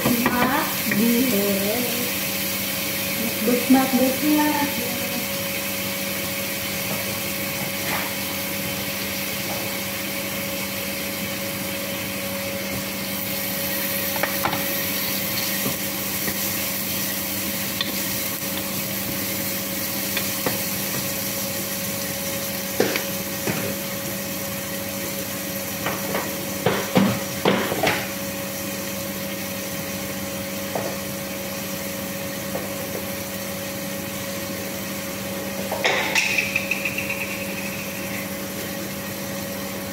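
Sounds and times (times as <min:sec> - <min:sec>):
machine hum: 0:34.4 - 0:39.9
utensils knocking against a pot: 0:35.7 - 0:38.4.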